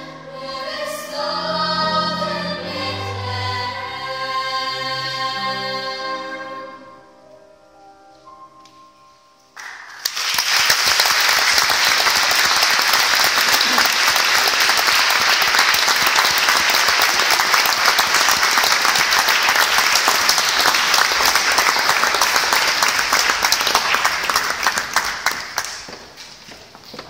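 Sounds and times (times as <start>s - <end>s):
audience applauding: 9.6s - 26.2s.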